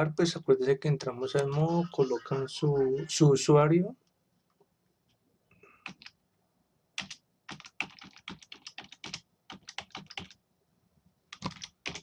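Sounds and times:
typing on computer keyboard: 5.8 - 6.2, 7.0 - 10.4, 11.3 - 12.0.

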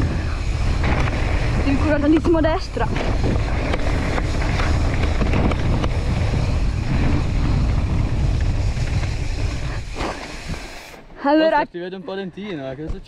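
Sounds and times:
wind buffeting microphone: 0.0 - 10.9
bike rattling: 0.0 - 11.6.

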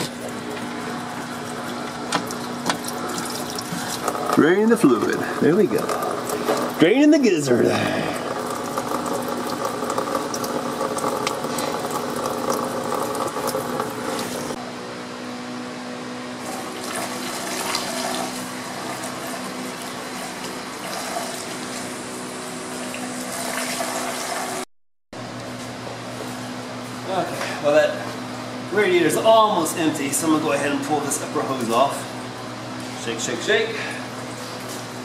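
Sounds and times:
liquid poured through funnel: 0.0 - 4.4, 5.0 - 6.8, 7.8 - 14.6
steady low hum: 0.0 - 23.5.

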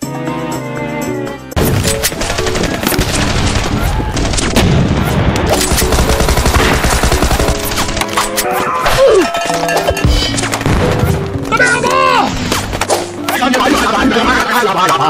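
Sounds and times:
music: 0.0 - 15.0
cartoon machine-gun fire: 1.8 - 7.8.

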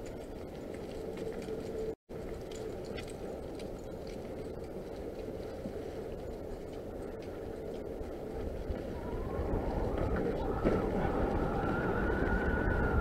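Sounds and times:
wind: 0.0 - 13.0
bike tyres rumbling on dirt: 7.8 - 13.0.

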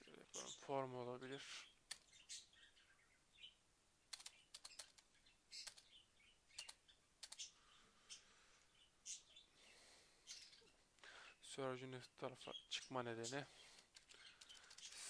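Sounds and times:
keyboard and mouse clicks: 1.9 - 2.1, 4.1 - 7.5, 13.8 - 15.0.

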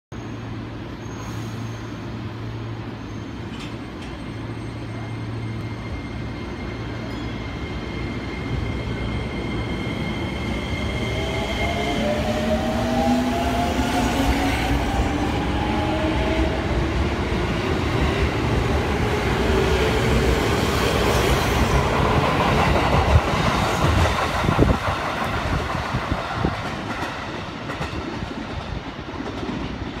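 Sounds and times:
train wheels clacking over rail joints: 23.8 - 30.0.

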